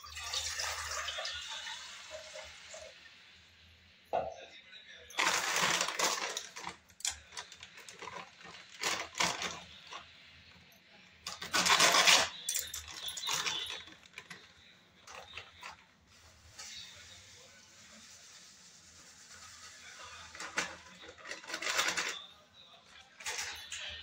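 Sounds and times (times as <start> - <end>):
plastic packet crinkling: 5.2 - 10.0, 11.3 - 15.8, 20.3 - 22.2.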